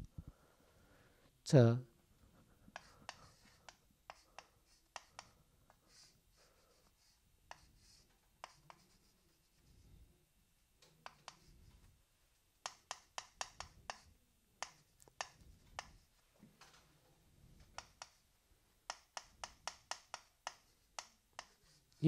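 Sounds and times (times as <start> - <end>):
chalk tapping on blackboard: 2.7 - 6.1, 6.7 - 9.3, 11.0 - 11.5, 12.6 - 16.0, 17.8 - 22.0.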